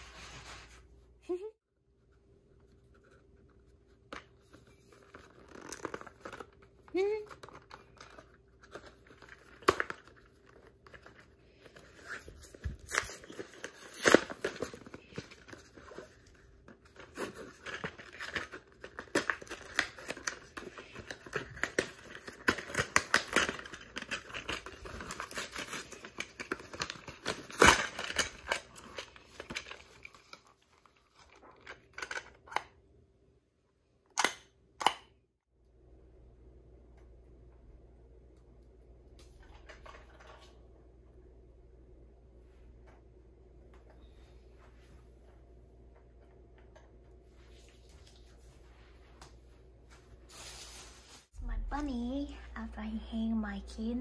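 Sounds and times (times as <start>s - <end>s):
packaging tearing and crinkling: 12.0s - 16.1s, 16.9s - 31.8s.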